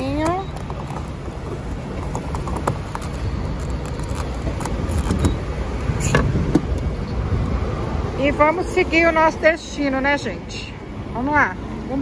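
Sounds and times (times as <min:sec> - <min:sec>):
road traffic rumble: 0:00.0 - 0:12.0
fuel nozzle clicks and knocks: 0:00.1 - 0:05.4.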